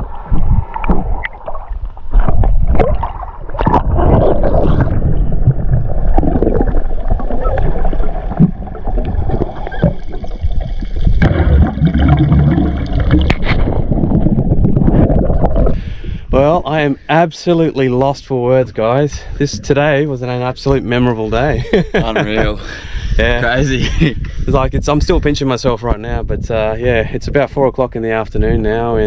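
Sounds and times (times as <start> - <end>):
underwater water gurgling: 0.0 - 16.3.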